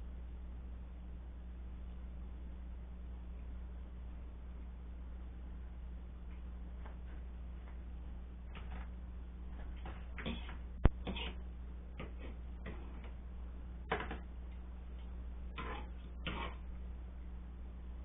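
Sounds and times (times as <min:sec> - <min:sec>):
steady low hum: 0:00.0 - 0:18.0
fork and knife scraping: 0:09.7 - 0:11.4, 0:12.0 - 0:13.1, 0:15.5 - 0:16.7.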